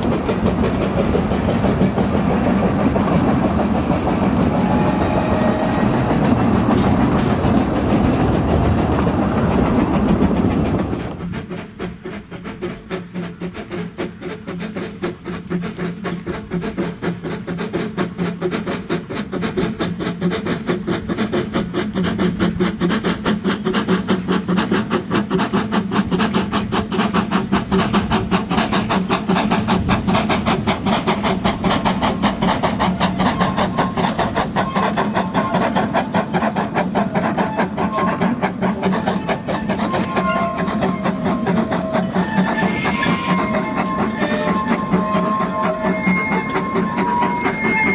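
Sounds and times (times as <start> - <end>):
carriages rolling on rails: 0.0 - 47.9
steam locomotive chuffing: 0.0 - 47.9.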